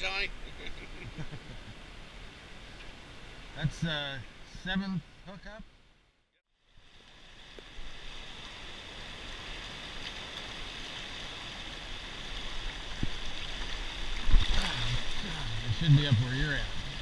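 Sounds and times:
river water rushing past boat: 6.7s - 17.0s.

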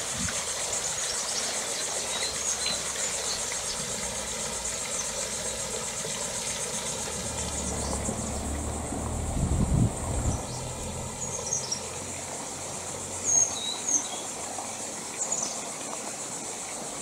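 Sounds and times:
high-pitched insect chorus: 0.0s - 17.0s
low steady hum: 6.8s - 12.4s.

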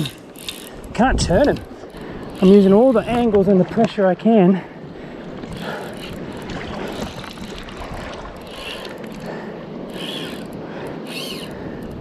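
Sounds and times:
fly reel ratchet clicking: 0.0s - 3.3s, 8.4s - 12.0s.

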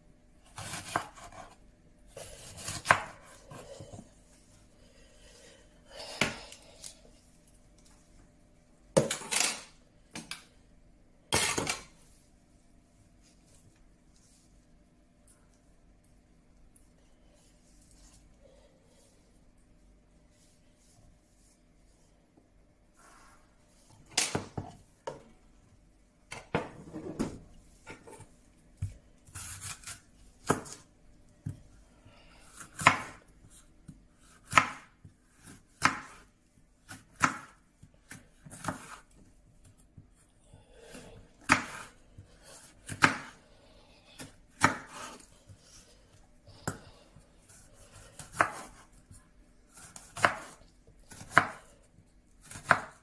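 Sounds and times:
knife slicing pepper on board: 0.6s - 1.6s, 47.5s - 48.9s, 49.7s - 51.7s.

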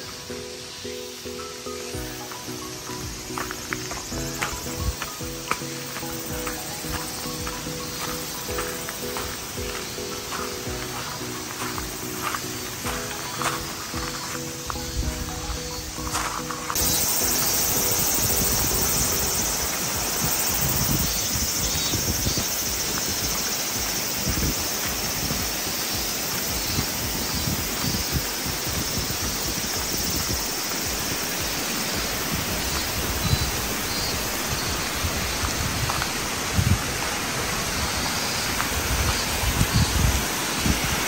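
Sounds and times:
river rushing: 0.0s - 41.0s
wind buffeting microphone: 16.8s - 41.0s.

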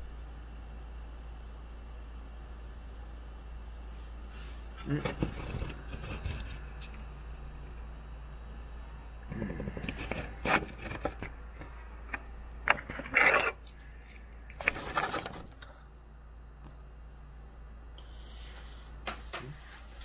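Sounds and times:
steady low hum: 0.0s - 20.0s
handling scraping and rubbing: 9.7s - 15.6s.

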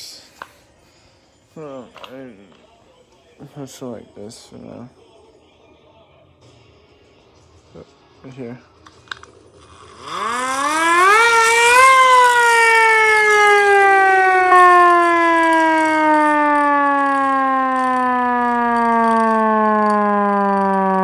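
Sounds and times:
hand-crank siren wailing: 9.6s - 21.0s.

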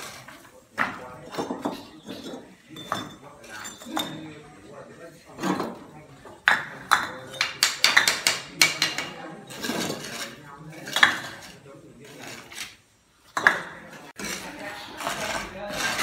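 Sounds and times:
trowel and bricks clinking: 6.5s - 16.0s.

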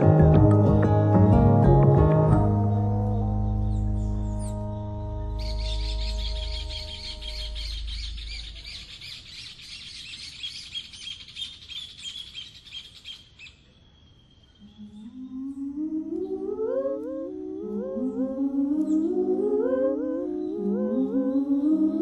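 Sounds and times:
rising synth melody: 0.0s - 8.8s, 14.6s - 22.0s
high twittering birdsong: 2.4s - 16.4s, 19.9s - 22.0s.

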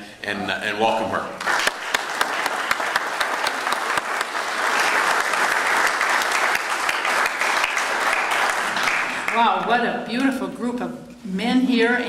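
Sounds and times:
audience applauding: 1.4s - 9.6s.

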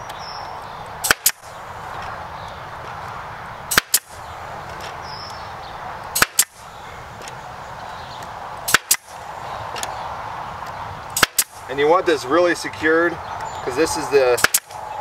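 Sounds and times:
pneumatic stapler firing: 1.0s - 1.4s, 3.7s - 4.1s, 6.2s - 6.6s, 8.7s - 9.1s, 11.2s - 11.6s, 14.4s - 14.8s.

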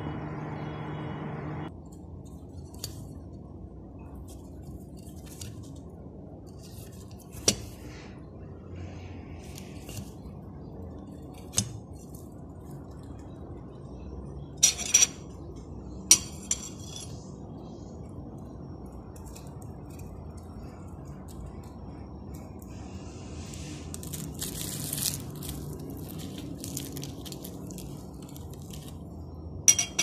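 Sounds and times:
low background hum: 0.0s - 30.0s
cutlery clinking on plate: 29.7s - 30.0s.

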